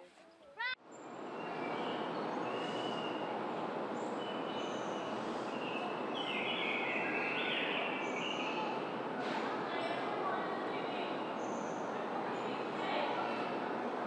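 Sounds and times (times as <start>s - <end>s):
birds chirping and whistling: 1.5s - 3.3s.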